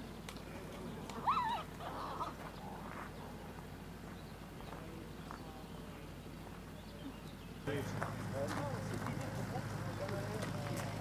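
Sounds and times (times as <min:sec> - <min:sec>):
faint outdoor background: 0:00.0 - 0:11.0
wavering animal cry: 0:01.2 - 0:02.9.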